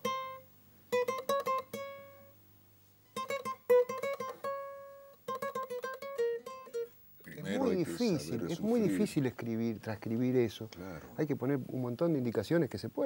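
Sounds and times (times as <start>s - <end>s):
acoustic guitar tango melody: 0.0s - 2.4s, 3.1s - 9.2s.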